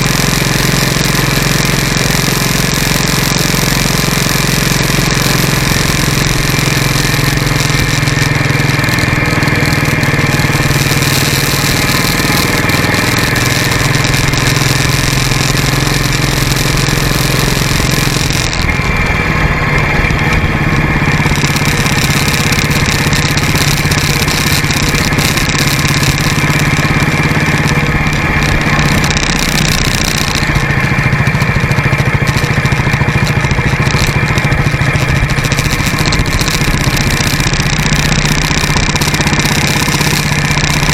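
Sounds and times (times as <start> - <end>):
motorcycle engine running: 0.0 - 40.9
wind and road noise: 0.0 - 40.9.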